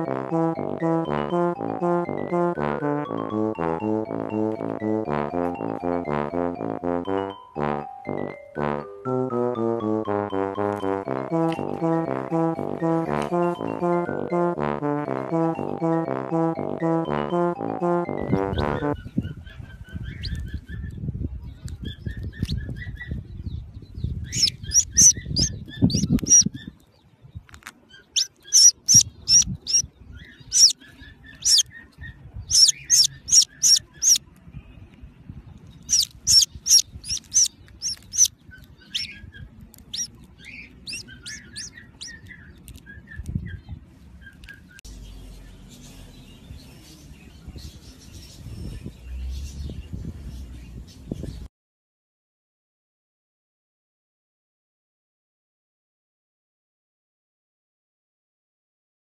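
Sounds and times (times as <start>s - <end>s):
budgerigars chirping: 19.0s - 21.0s, 24.2s - 26.8s, 27.9s - 34.2s, 35.8s - 45.2s.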